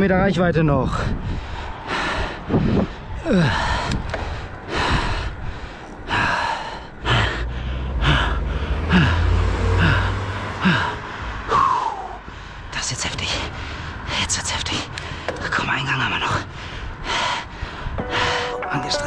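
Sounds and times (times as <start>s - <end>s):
car passing with low rumble: 0.0s - 18.9s
person breathing hard and gasping: 1.1s - 12.7s, 16.5s - 18.6s.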